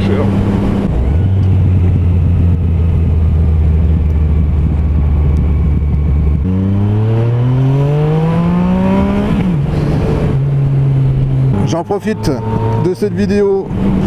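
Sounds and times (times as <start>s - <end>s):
motorcycle engine accelerating: 0.0s - 14.0s.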